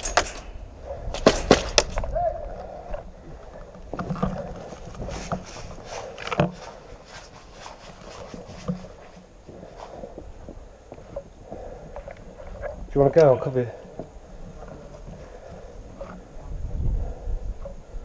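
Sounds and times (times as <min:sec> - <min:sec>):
footsteps crunching through snow: 0:04.4 - 0:11.2.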